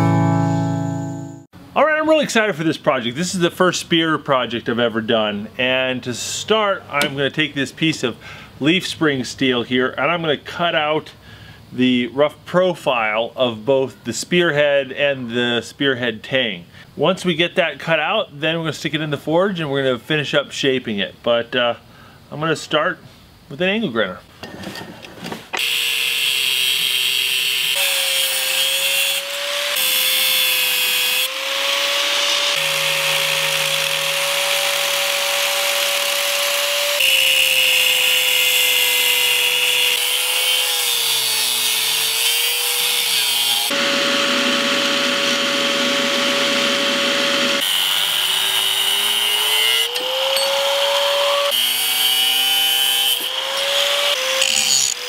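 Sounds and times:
angle grinder cutting steel: 25.6 - 55.0.

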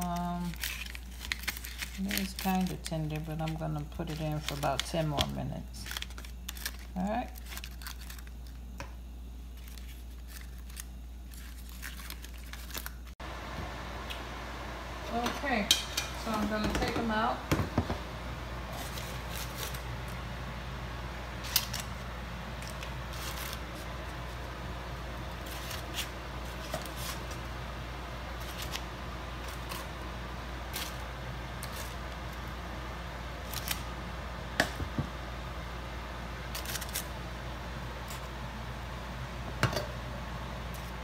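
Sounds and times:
foil crinkling: 0.0 - 8.8, 9.4 - 13.2, 18.7 - 20.2, 21.3 - 32.6, 33.3 - 33.9, 36.4 - 37.2
steady low hum: 0.0 - 41.0.

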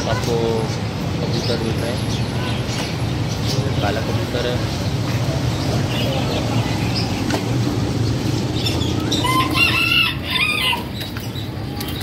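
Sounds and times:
low hum of market and traffic: 0.0 - 12.0
rooster crowing: 9.1 - 10.9.

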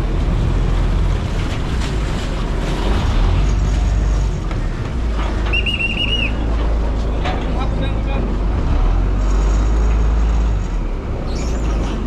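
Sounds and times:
boat engine rumbling: 0.0 - 12.0
pea whistle trilled blast: 5.5 - 6.4.

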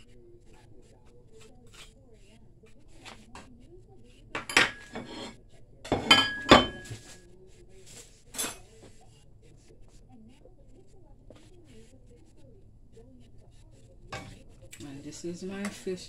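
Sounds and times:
metal utensil clinking on a pan: 4.4 - 7.2, 8.3 - 8.7, 14.1 - 14.4.

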